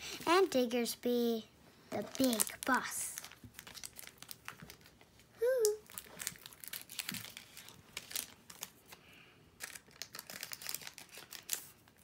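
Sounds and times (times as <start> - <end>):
foil wrappers crinkling: 2.0 - 9.0, 9.6 - 12.0
trading cards crinkling and clicking: 2.1 - 5.0, 5.6 - 9.0, 9.6 - 12.0.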